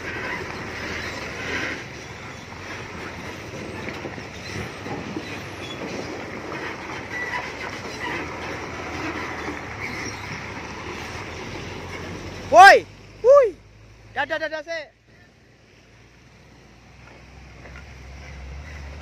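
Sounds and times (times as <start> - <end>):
rattles and squeaks from truck deck: 0.0 - 12.8, 17.6 - 19.0
tyres in muddy water: 0.0 - 14.2
truck engine rumble: 0.0 - 19.0.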